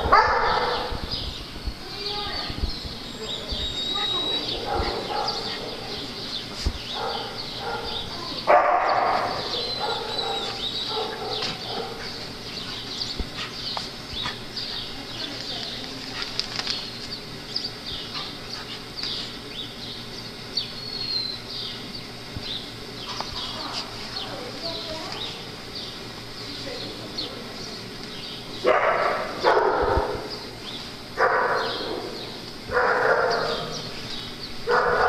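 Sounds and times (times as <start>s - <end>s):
dogs high chirps: 2.6s - 24.4s, 28.6s - 35.0s
dogs growling: 3.2s - 6.2s, 8.8s - 15.2s.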